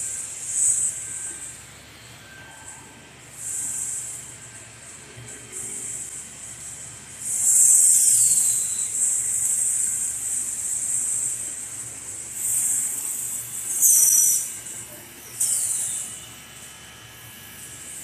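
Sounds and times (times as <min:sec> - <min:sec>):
low machine hum: 0:00.0 - 0:18.0
high hissing bursts: 0:05.6 - 0:16.7.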